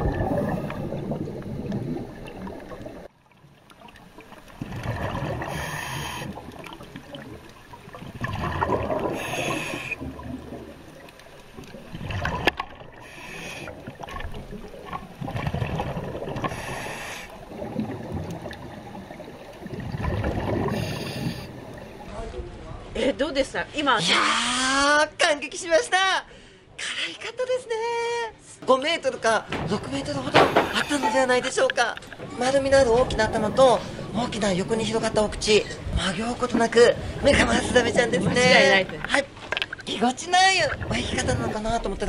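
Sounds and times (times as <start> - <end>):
bubbling exhalations: 0.0 - 3.1, 4.6 - 10.7, 11.7 - 21.8
scuba regulator breathing underwater: 5.4 - 6.5, 9.0 - 10.0, 13.0 - 14.0, 16.4 - 17.5, 20.6 - 21.7.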